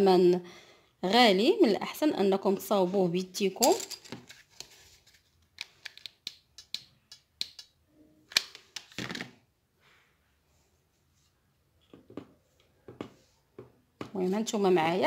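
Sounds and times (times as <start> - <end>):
clatter of handling beads: 3.6 - 4.5.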